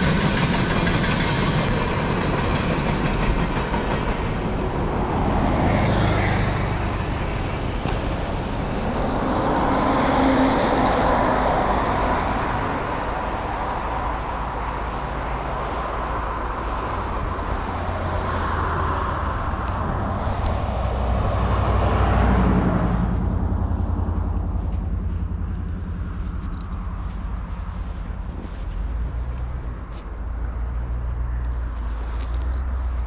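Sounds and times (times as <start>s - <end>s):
train rumbling past: 0.0s - 33.0s
wheel and rail noise: 0.0s - 33.0s.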